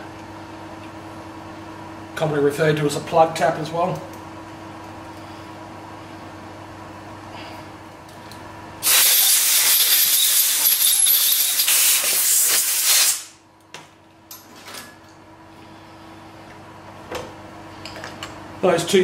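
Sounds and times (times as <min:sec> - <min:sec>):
low machine hum: 0:00.0 - 0:08.9, 0:13.3 - 0:19.0
compressed air blast: 0:08.8 - 0:13.4.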